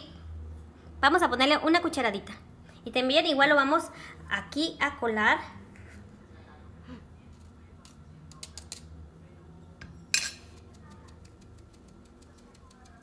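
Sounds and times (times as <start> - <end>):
spoon clinking on glass plate: 10.1 - 10.6
metal spoon clicking on plastic sieve: 10.6 - 13.0.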